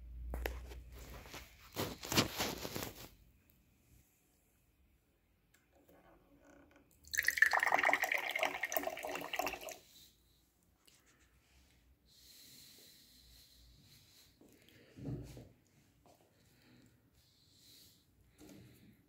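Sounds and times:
liquid pouring into glass: 0:07.0 - 0:09.8.

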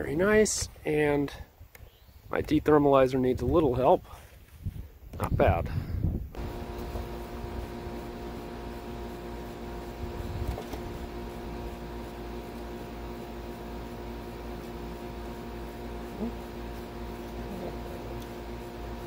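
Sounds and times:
machine hum over low rumble: 0:06.0 - 0:19.0.

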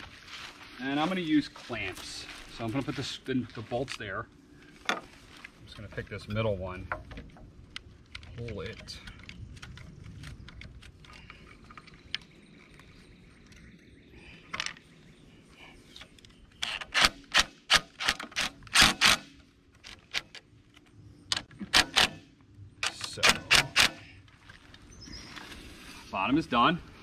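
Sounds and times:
power driver driving bolts: 0:21.3 - 0:22.2, 0:22.8 - 0:24.0.

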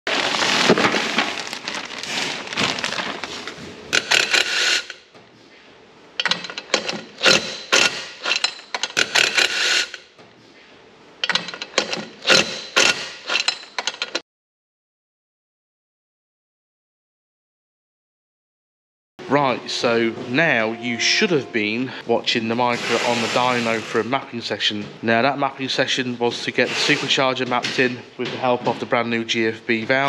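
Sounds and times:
plastic bag rustling: 0:00.1 - 0:03.9
cordless driver metallic clatter: 0:06.2 - 0:10.0, 0:11.2 - 0:14.2.

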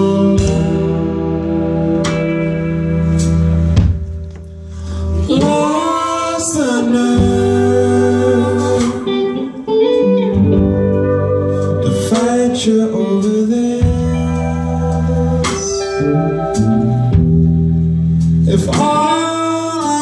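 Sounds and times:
man singing: 0:00.0 - 0:02.9, 0:05.0 - 0:10.1, 0:11.5 - 0:17.2, 0:18.4 - 0:20.0
electric guitar: 0:00.0 - 0:20.0
low bass notes: 0:00.0 - 0:20.0.

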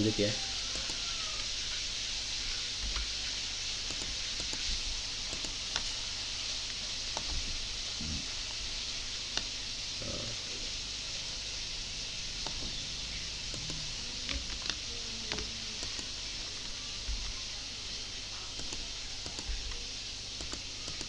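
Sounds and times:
microphone hiss: 0:00.0 - 0:21.0
computer mouse clicks: 0:00.7 - 0:01.5, 0:03.8 - 0:05.9, 0:07.1 - 0:07.4, 0:09.3 - 0:09.5, 0:12.4 - 0:12.7, 0:13.5 - 0:16.8, 0:18.5 - 0:19.8, 0:20.4 - 0:21.0.

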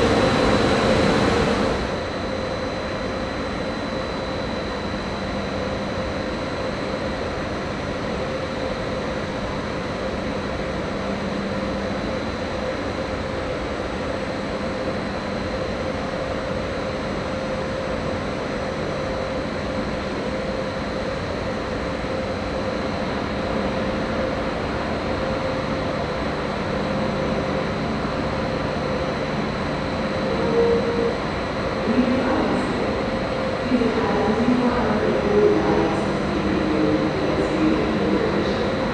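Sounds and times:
electric train humming: 0:00.0 - 0:03.7, 0:21.1 - 0:38.9
deeper hum: 0:28.8 - 0:38.9.

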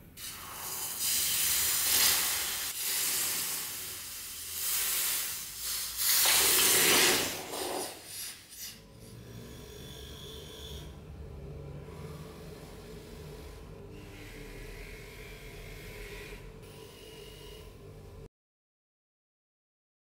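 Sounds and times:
hot metal sizzling in water: 0:00.2 - 0:08.7.

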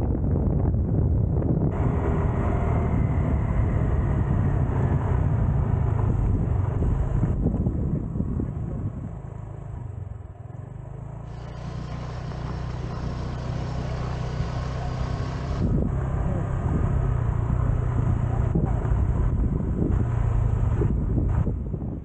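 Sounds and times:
wind rumble on microphone: 0:00.0 - 0:22.0
scooter engine running: 0:01.7 - 0:21.7.

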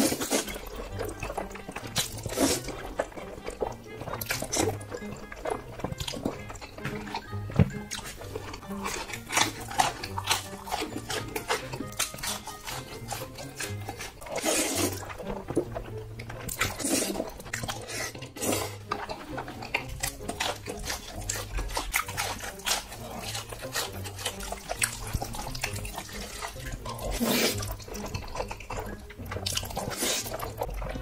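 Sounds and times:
close chewing with wet smacks: 0:00.0 - 0:31.0.

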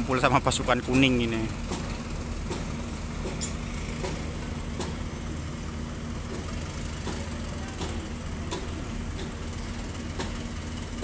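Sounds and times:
heavy machine engine running: 0:00.0 - 0:11.0
sharp metallic clanks: 0:02.5 - 0:05.0.

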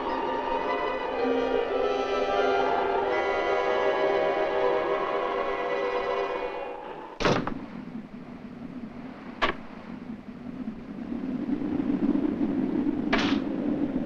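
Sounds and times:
storm wind blowing: 0:00.0 - 0:14.0
sharp knocks: 0:13.1 - 0:13.4.

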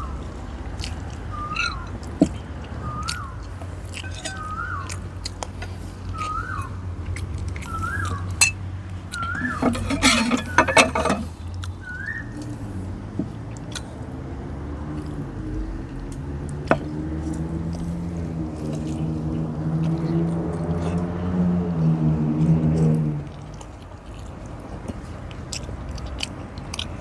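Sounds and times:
metal spoon scraping ceramic dishes: 0:04.0 - 0:04.5, 0:09.2 - 0:11.3.

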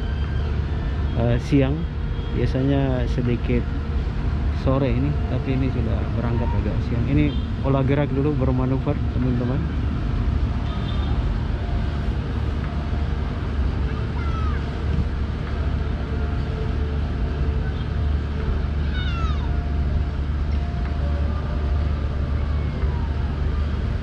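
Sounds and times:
ship engine rumbling: 0:00.0 - 0:24.0
short falling high cries: 0:18.8 - 0:19.5.

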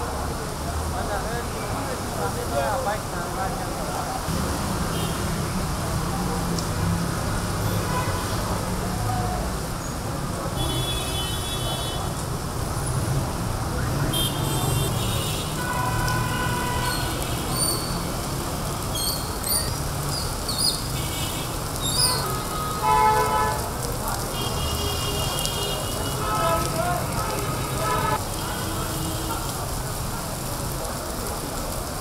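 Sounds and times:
heavy rain: 0:00.0 - 0:32.0
wet street traffic: 0:00.0 - 0:32.0
vehicle horn toots: 0:14.1 - 0:17.9, 0:21.0 - 0:23.7, 0:24.4 - 0:29.5.

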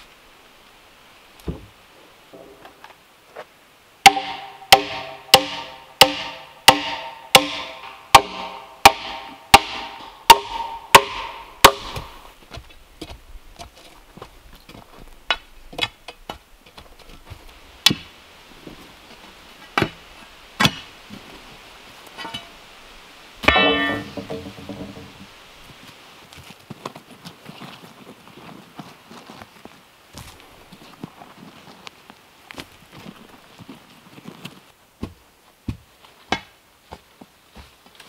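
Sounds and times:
sledgehammer pounding log: 0:04.1 - 0:12.2, 0:23.4 - 0:25.2
steel digging bar knocks: 0:04.1 - 0:12.2, 0:22.2 - 0:22.6, 0:23.4 - 0:25.2.

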